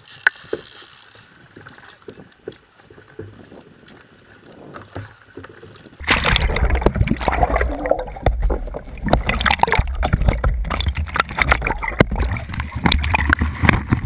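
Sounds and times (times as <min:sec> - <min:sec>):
water sloshing and gurgling: 0:03.1 - 0:14.0.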